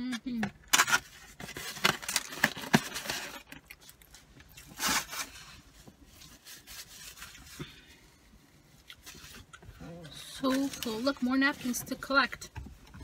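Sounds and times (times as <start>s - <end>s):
foam takeout box creaking: 0.6s - 3.9s.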